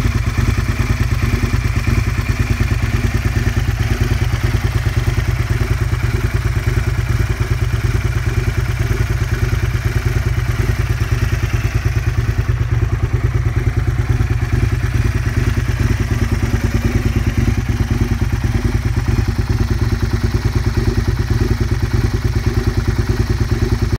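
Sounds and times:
motorcycle engine idling: 0.0 - 23.9.

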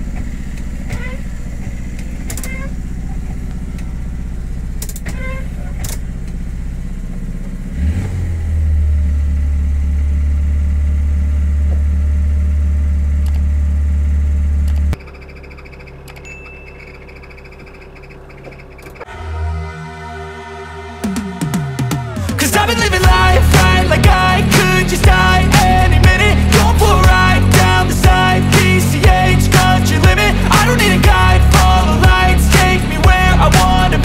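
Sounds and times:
car engine running: 0.0 - 19.2, 21.0 - 34.0
sharp clicks: 4.8 - 5.2.

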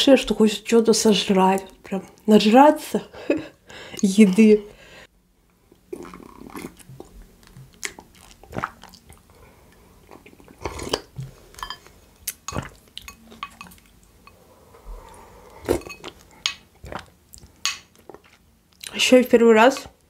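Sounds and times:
wet chewing and smacking: 5.7 - 9.4, 16.0 - 19.0.

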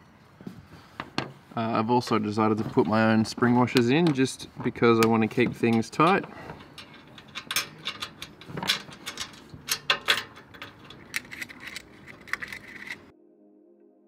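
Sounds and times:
metal washers and nuts clinking: 5.0 - 13.1
soft background music: 11.4 - 14.0.

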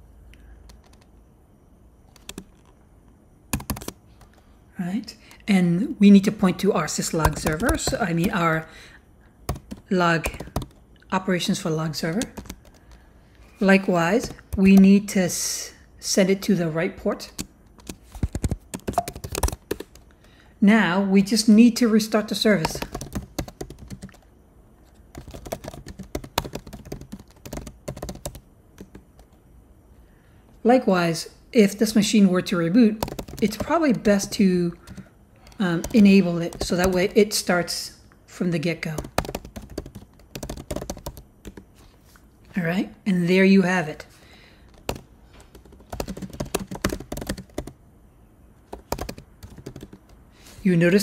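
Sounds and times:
typing on computer keyboard: 0.6 - 1.1, 2.1 - 2.8, 3.5 - 4.4, 6.9 - 8.5, 9.5 - 10.8, 12.0 - 13.0, 14.1 - 14.9, 17.2 - 20.1, 22.6 - 24.3, 24.9 - 29.4, 33.0 - 37.4, 38.9 - 41.7, 44.6 - 47.8, 48.7 - 50.2.

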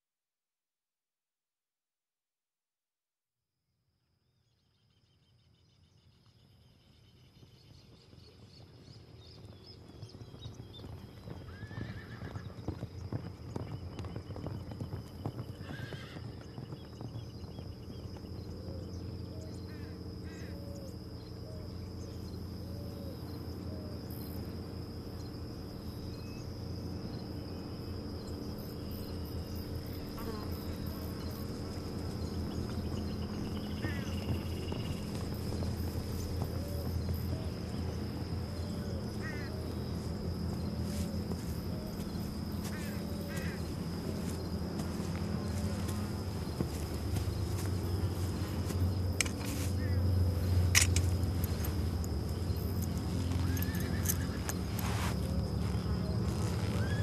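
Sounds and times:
hooves clopping: 7.4 - 19.2, 28.6 - 57.0
horses neighing: 11.4 - 12.7, 15.5 - 16.6, 53.0 - 55.1.

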